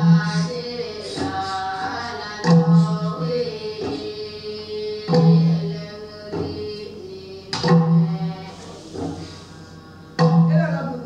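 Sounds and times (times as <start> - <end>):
low percussive beat: 0.0 - 4.1, 9.9 - 11.0.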